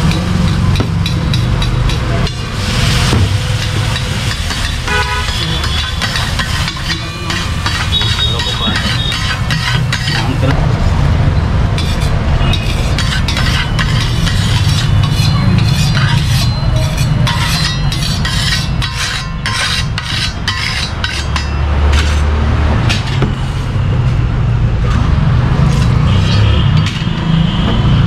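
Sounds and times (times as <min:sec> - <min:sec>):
metal spatula scraping griddle: 0:00.4 - 0:10.6, 0:11.8 - 0:23.7
steady low rumble: 0:10.4 - 0:16.0.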